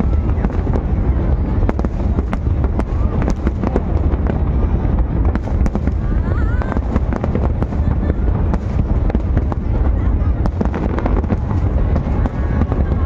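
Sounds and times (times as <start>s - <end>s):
fireworks bursting: 0.0s - 13.0s
low rumble: 0.0s - 13.0s.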